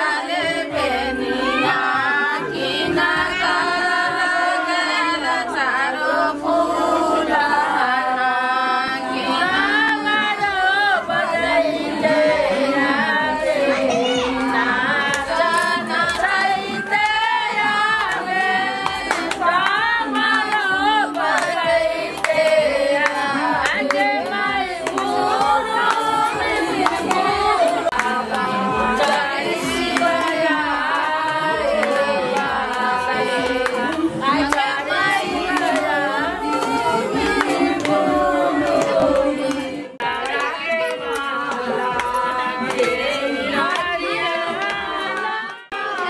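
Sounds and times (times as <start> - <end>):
women singing together: 0.0 - 46.0
hands clapping in time: 18.0 - 46.0.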